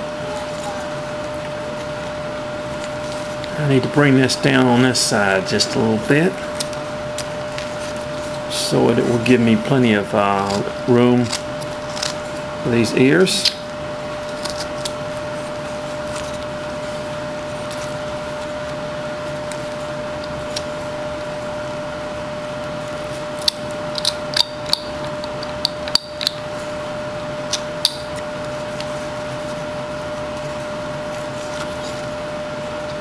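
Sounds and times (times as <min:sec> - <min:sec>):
background hum: 0:00.0 - 0:33.0.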